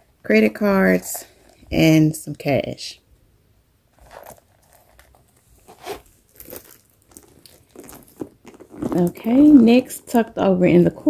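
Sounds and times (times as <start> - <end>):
leather bag rustling and crinkling: 3.9 - 10.2.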